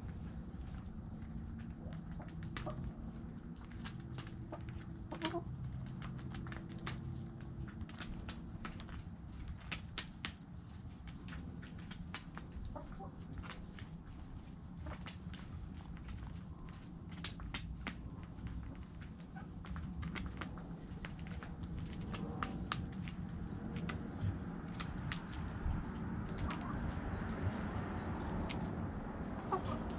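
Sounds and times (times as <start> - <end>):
chickens clucking: 1.7 - 6.9, 12.4 - 13.8, 26.2 - 29.9.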